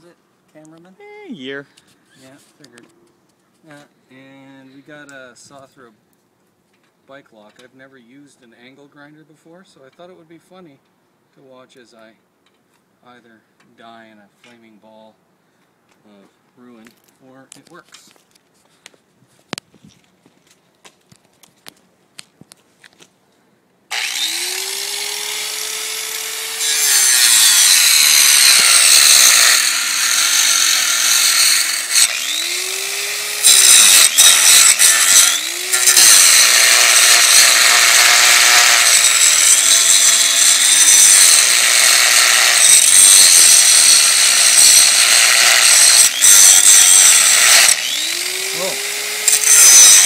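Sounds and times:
angle grinder motor whine: 0:23.9 - 0:42.9, 0:44.4 - 0:50.0.

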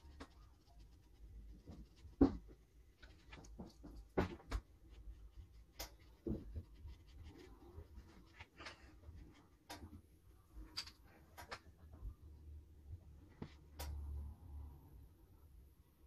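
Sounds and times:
paintbrush brushing on paper: 0:00.0 - 0:09.8
brushes tapping and clicking: 0:00.0 - 0:10.1.

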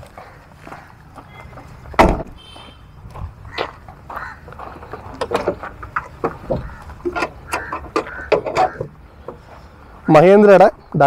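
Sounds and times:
footsteps: 0:00.0 - 0:08.3
car door slamming: 0:01.9 - 0:02.6
light metallic clicks and knocks: 0:04.8 - 0:09.5.

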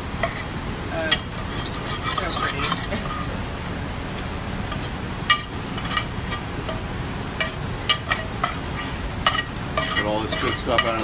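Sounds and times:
kitchen background noise: 0:00.0 - 0:11.0
metal utensil scraping a pan: 0:00.2 - 0:00.5, 0:01.1 - 0:03.4, 0:04.7 - 0:06.8, 0:07.4 - 0:11.0.

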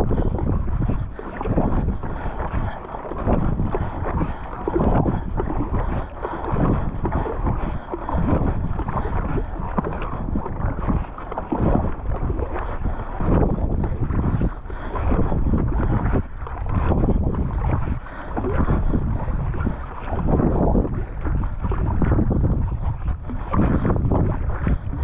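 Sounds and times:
kayak paddle splashing: 0:00.0 - 0:25.0
wind rumbling on microphone: 0:00.0 - 0:25.0.

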